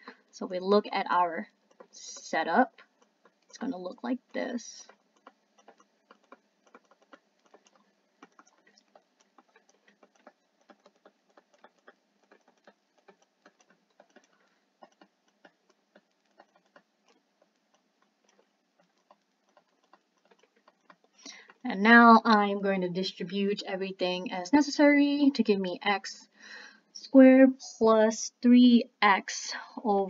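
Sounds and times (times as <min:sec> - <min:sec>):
stylus tapping on tablet: 0:01.6 - 0:21.7.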